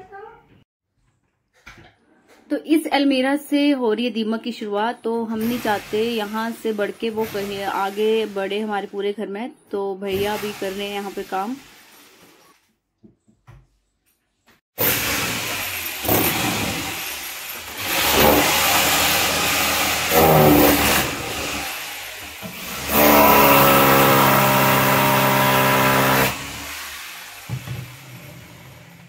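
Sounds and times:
electric drill whining: 14.8s - 29.0s.

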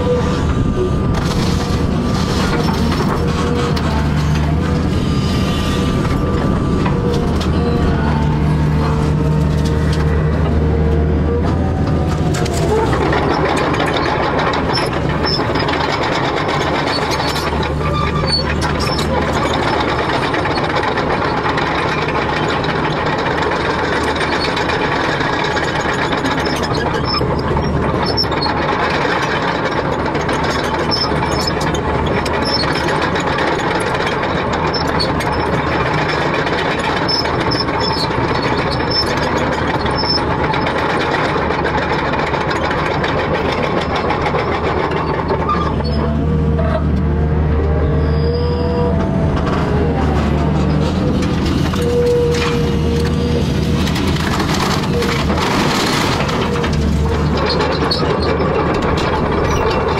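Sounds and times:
excavator engine running: 0.0s - 59.9s
faint squeaks and clicks: 12.3s - 59.9s.

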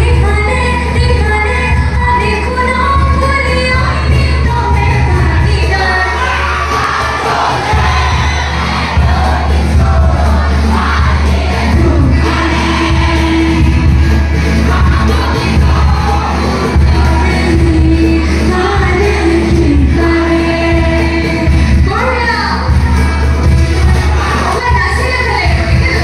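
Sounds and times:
woman singing into a microphone: 0.0s - 22.9s, 23.7s - 26.0s
band with keyboard and guitars: 0.0s - 26.0s.

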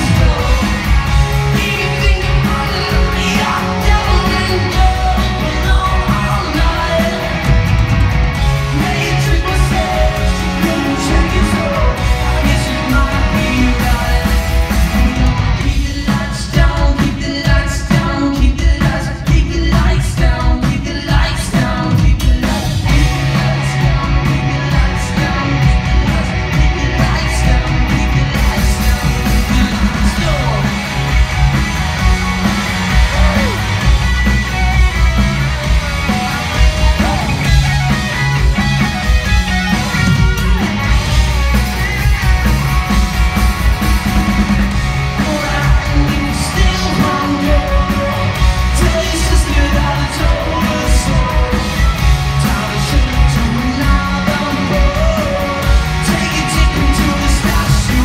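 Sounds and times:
person singing: 0.0s - 7.6s, 8.4s - 30.8s, 32.9s - 33.9s, 45.0s - 58.0s
live rock band playing: 0.0s - 58.0s.

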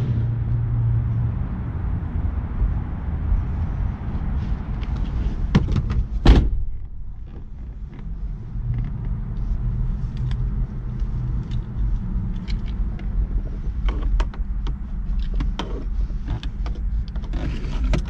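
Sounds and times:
steady low rumble: 0.0s - 18.0s
car door shutting: 5.0s - 7.5s
small clicks and rustles: 7.1s - 18.0s.

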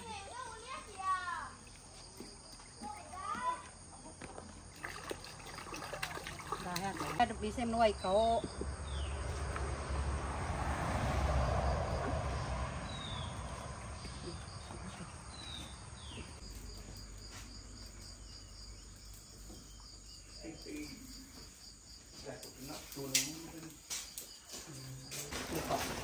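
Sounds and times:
insects chirping: 0.0s - 26.0s
falling bird calls: 12.9s - 16.4s.

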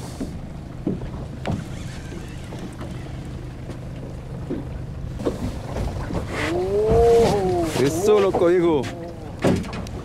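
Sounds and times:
water noise: 0.0s - 10.0s
wind: 0.0s - 10.0s
boat motor idling: 0.1s - 6.3s.

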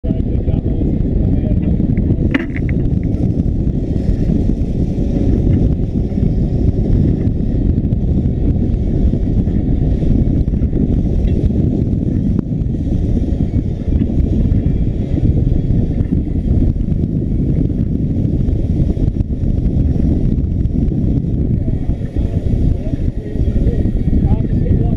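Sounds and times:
outboard motor running: 0.0s - 24.9s.

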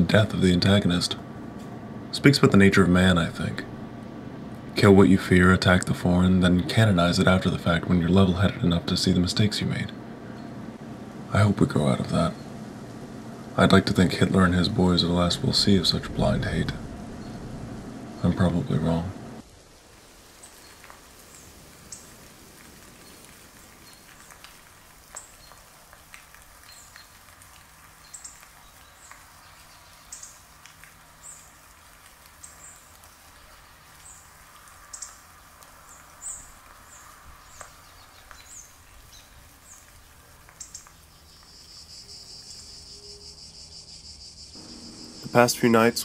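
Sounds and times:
low hiss: 0.0s - 46.0s
crickets chirping: 34.1s - 46.0s.

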